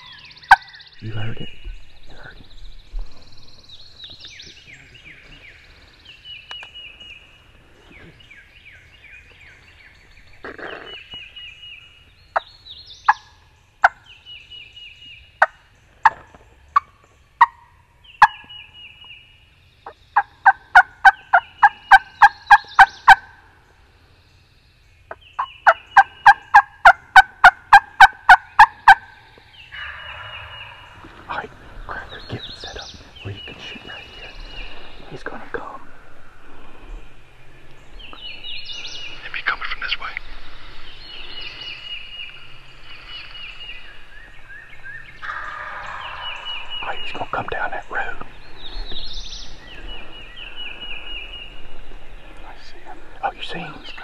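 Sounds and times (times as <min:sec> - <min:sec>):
hen turkey call yelps: 0:00.0 - 0:00.8, 0:16.8 - 0:18.7, 0:19.8 - 0:23.4, 0:25.1 - 0:31.2, 0:45.2 - 0:46.8
distant turkey gobbling: 0:00.0 - 0:02.5, 0:10.4 - 0:11.4, 0:12.3 - 0:14.2, 0:15.4 - 0:19.2, 0:19.8 - 0:23.6, 0:25.1 - 0:36.7, 0:40.8 - 0:51.6.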